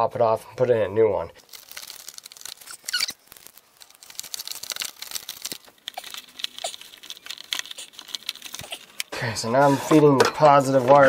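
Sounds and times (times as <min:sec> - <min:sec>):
hands rustling wiring: 0:01.4 - 0:09.1.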